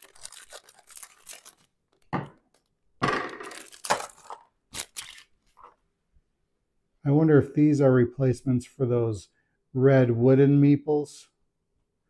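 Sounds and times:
scissors snipping plastic bag: 0.0s - 2.6s, 3.5s - 5.3s
plastic bag crinkling: 0.0s - 2.7s, 3.4s - 5.8s.

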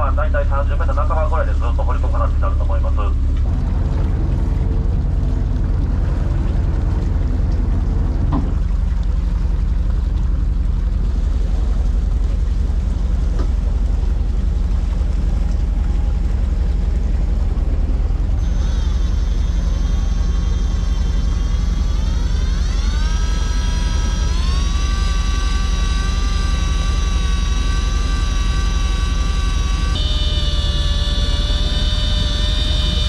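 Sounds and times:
boat engine idling: 0.0s - 33.0s
high-pitched wavering tone: 18.4s - 33.0s.

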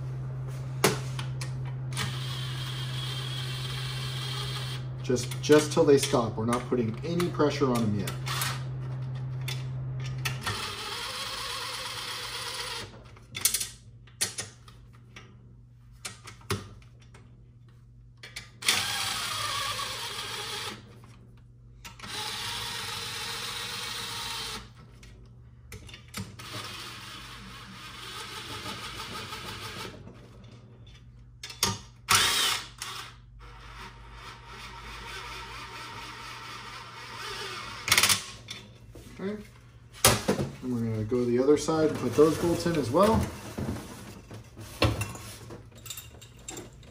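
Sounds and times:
power ratchet whirring: 0.8s - 12.9s, 18.6s - 20.8s, 21.9s - 24.8s, 32.1s - 38.4s
bolts and washers clinking: 45.7s - 46.9s.

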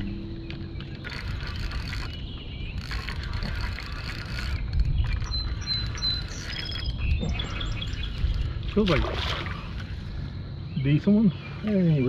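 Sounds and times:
spinning reel cranking: 1.0s - 6.9s.

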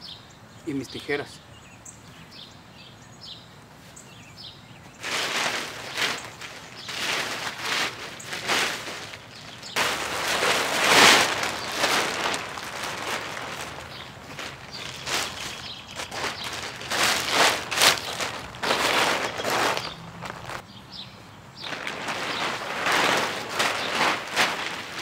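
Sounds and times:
plastic sheet rustling and crinkling: 5.0s - 20.6s, 21.6s - 25.0s.

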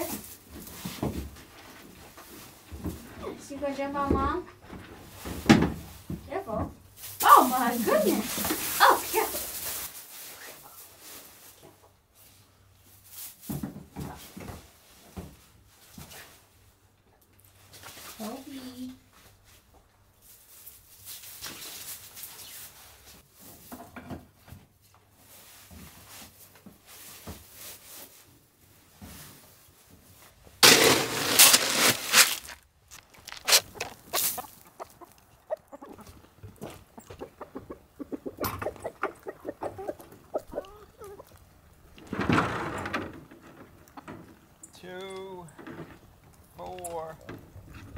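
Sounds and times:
rattling rush of feed pellets: 30.6s - 34.6s
chickens clucking: 32.9s - 42.1s, 43.3s - 44.7s.

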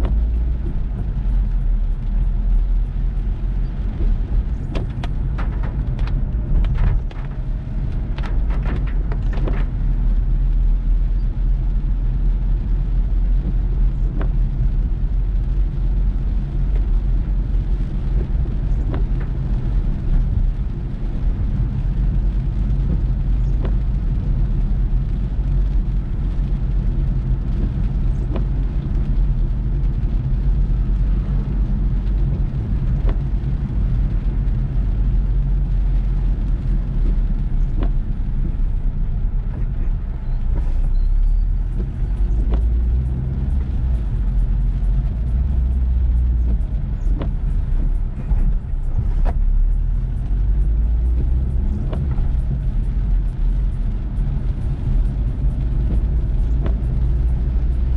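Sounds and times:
car engine and tyres on wet road: 0.0s - 57.9s.

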